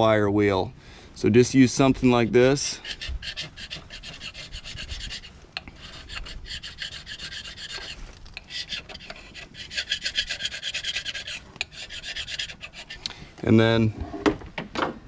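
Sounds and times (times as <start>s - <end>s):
hand scraper scraping metal: 2.5s - 13.1s.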